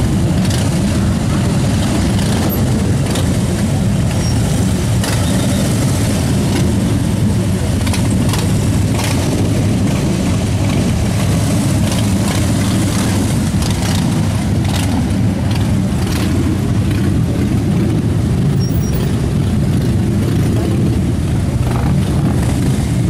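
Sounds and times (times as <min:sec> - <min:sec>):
many motorcycle engines rumbling: 0:00.0 - 0:23.0.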